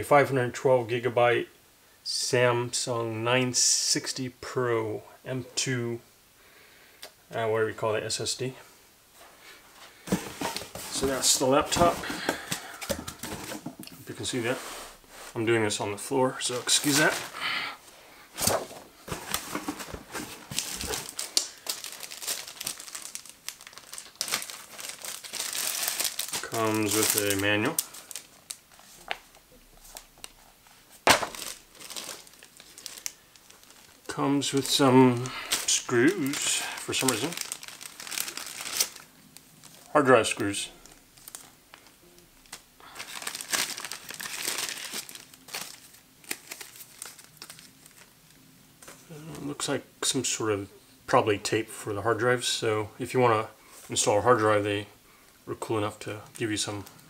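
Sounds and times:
packaging crinkling: 16.4 - 17.5, 18.3 - 48.3.

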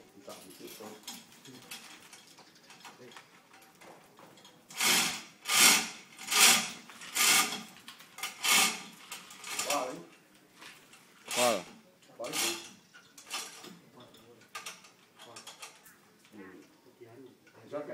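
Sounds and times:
chain hoist ratcheting: 4.4 - 10.2, 11.2 - 15.9.

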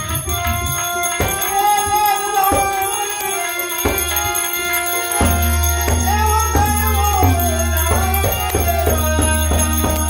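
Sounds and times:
harmonium chords: 0.0 - 10.0
small hand cymbals ringing: 0.0 - 10.0
tabla strokes: 0.0 - 10.0.

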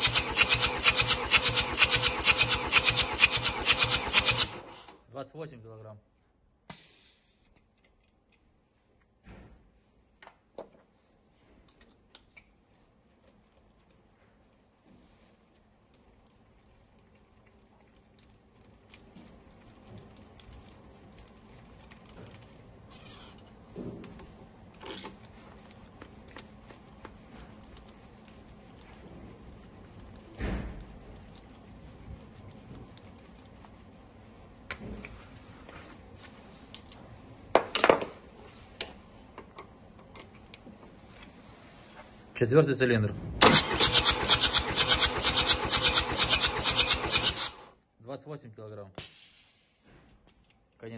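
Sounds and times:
ratchet clicks and metal clinks: 0.0 - 4.6, 43.5 - 47.6.

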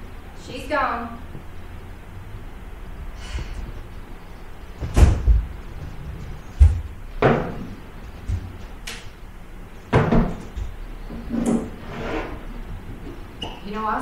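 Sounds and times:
props and furniture knocking: 4.8 - 9.0, 9.9 - 11.8.

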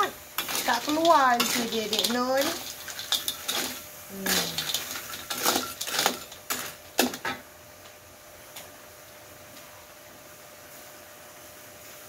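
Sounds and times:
spatula scraping wok: 0.0 - 7.2.

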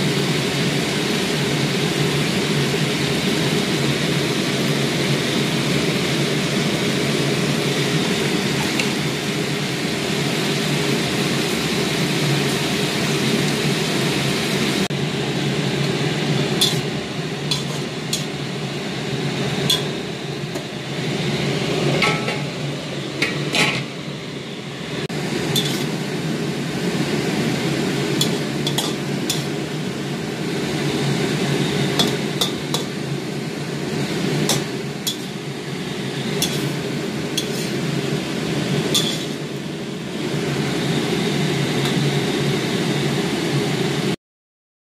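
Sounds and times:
spatula scraping and clinking wok: 8.5 - 9.0, 16.2 - 18.7, 19.3 - 20.6, 25.5 - 26.0, 28.0 - 29.9, 31.0 - 39.7.

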